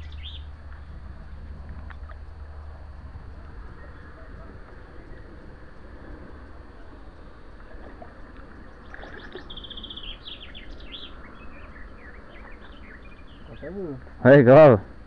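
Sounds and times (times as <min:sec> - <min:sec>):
songbird chirping: 0:00.0 - 0:01.0, 0:08.6 - 0:14.0
low steady rumble: 0:00.0 - 0:15.0.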